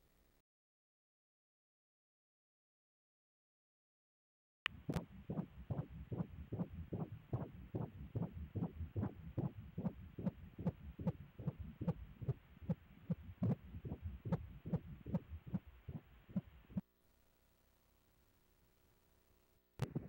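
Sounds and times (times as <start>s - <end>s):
doppler heartbeat pulses: 4.7s - 16.8s
faint hum: 4.7s - 20.0s.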